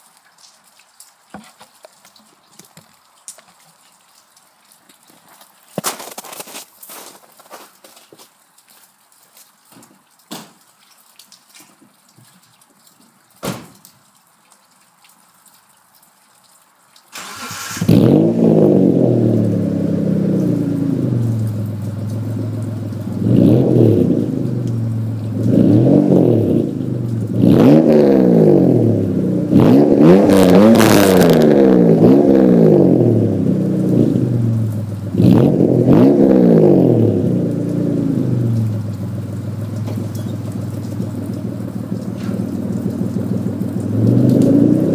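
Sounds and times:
car engine starting and revving: 17.2s - 44.9s.

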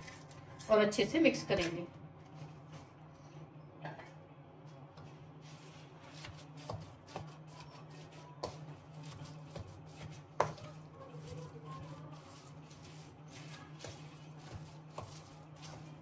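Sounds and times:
spatula stirring thick mixture: 5.0s - 16.0s.

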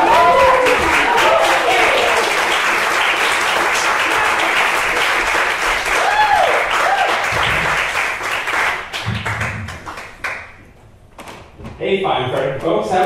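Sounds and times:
audience applauding: 0.0s - 10.6s
short whoops: 6.0s - 7.2s.

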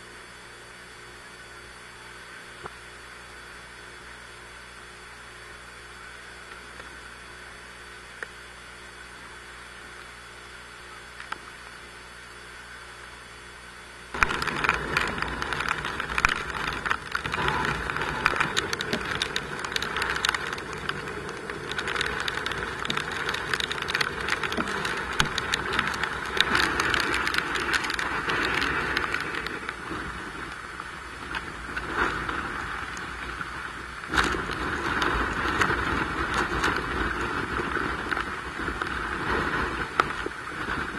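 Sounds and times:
faint steady hum: 0.0s - 40.9s
wind buffeting microphone: 14.1s - 40.9s
strong wind rushing and gusting: 14.2s - 40.9s.

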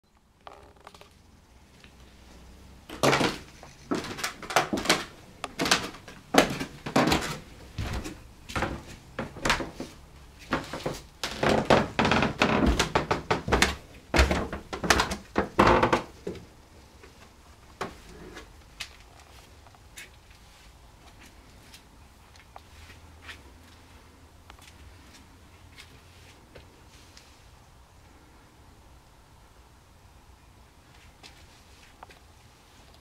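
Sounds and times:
footsteps on wooden stairs: 2.9s - 16.4s.

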